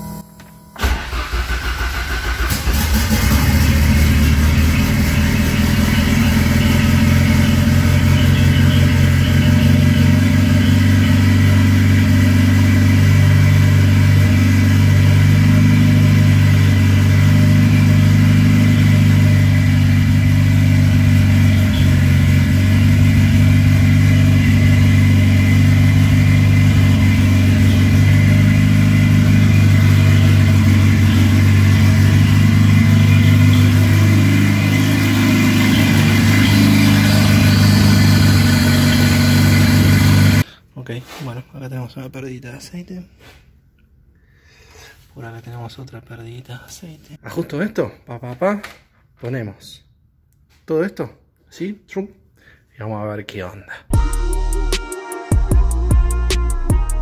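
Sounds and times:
starter cranking engine: 0.8 - 6.6
car engine idling: 0.8 - 40.5.

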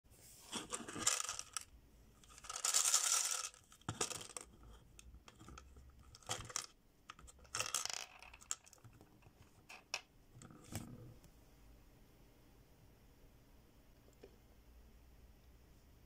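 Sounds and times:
plastic clicking and rattling: 0.7 - 10.9.

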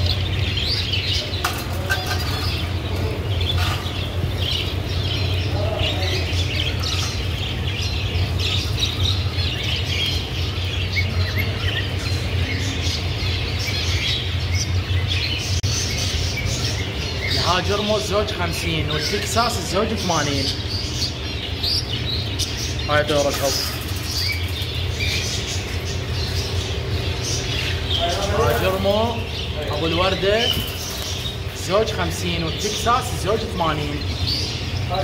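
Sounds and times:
finches chirping: 0.0 - 35.0
steady low hum: 0.0 - 35.0
wings fluttering: 22.5 - 29.0, 30.4 - 31.6.

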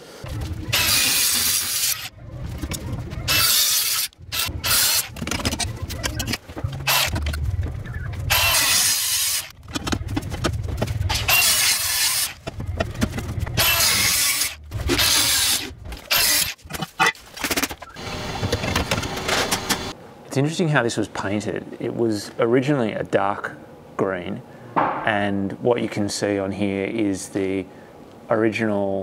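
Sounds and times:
angle grinder on steel: 0.7 - 2.1, 3.3 - 5.1, 8.3 - 9.5.

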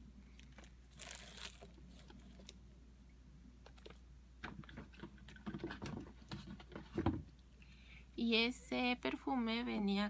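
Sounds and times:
rummaging through packaging: 0.4 - 2.6.

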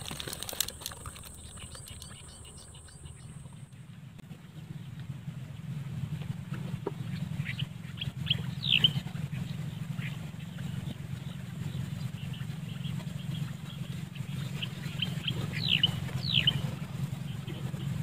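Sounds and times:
birds chirping: 0.0 - 18.0
steady low hum: 0.0 - 18.0
falling whistled bird calls: 1.3 - 3.5, 7.4 - 9.1, 14.6 - 16.7.

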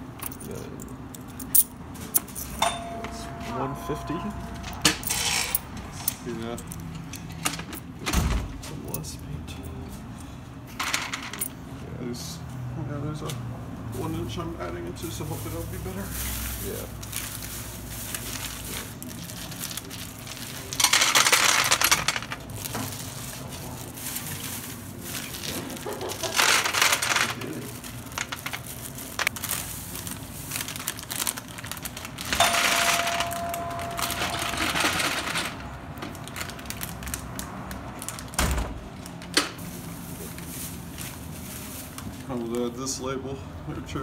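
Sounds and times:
plastic bag and foil rustling: 13.9 - 38.4, 39.0 - 42.9.

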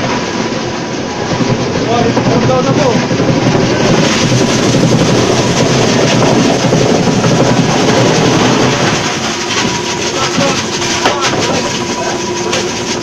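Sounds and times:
ice crusher rattling clatter: 3.9 - 13.0.

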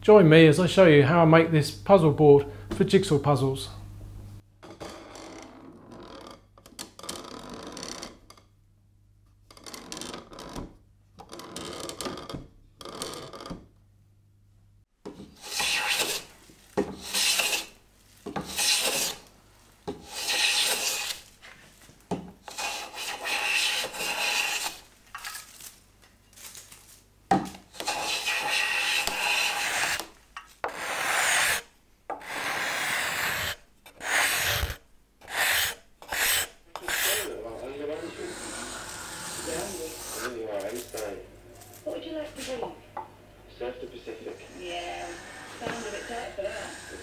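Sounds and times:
hand plane scraping wood: 15.2 - 19.3, 19.9 - 21.3, 22.4 - 24.8, 27.7 - 40.4, 45.1 - 47.0.

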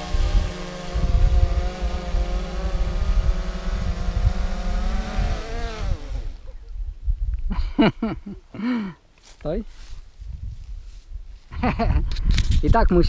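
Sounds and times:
drone propellers humming: 0.0 - 6.6
rotor wind buffeting microphone: 0.0 - 8.4, 9.5 - 13.0.

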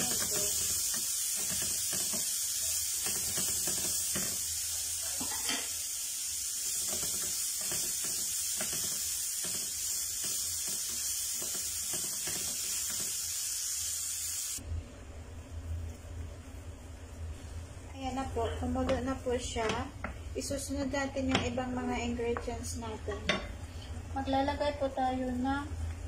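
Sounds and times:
food sizzling in a pan: 0.0 - 14.6.

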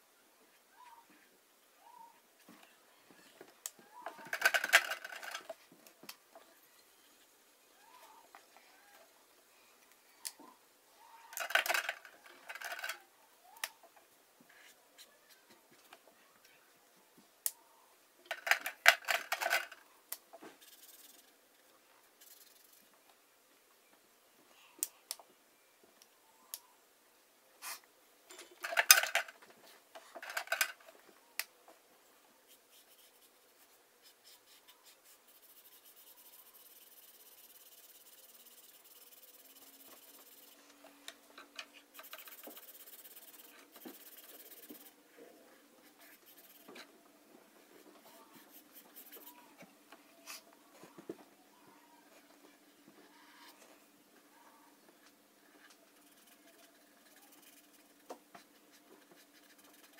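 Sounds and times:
handling noises: 11.3 - 13.1, 28.3 - 31.8
marker rubbing on paper: 20.5 - 21.3, 32.5 - 40.6, 42.0 - 45.0, 45.8 - 46.8, 48.1 - 49.5, 55.9 - 59.9.

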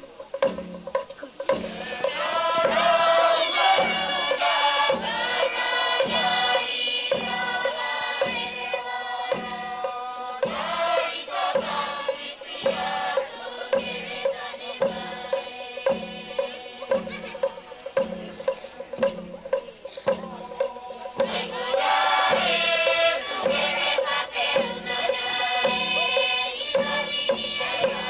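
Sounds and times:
steady drum beat: 0.0 - 28.0
group of voices chanting: 1.5 - 28.0.

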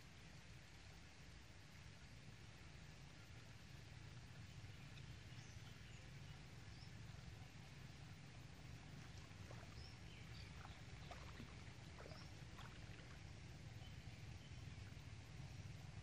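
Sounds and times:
faint bird chirps: 8.7 - 16.0.

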